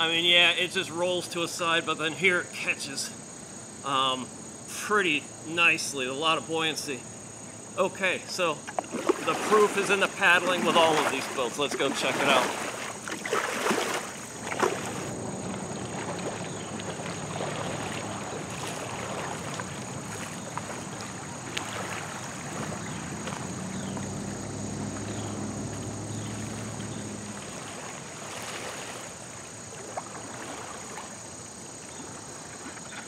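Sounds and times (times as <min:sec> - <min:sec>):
water moving at the bank: 0:07.8 - 0:33.0
kayak paddle strokes splashing: 0:08.0 - 0:33.0.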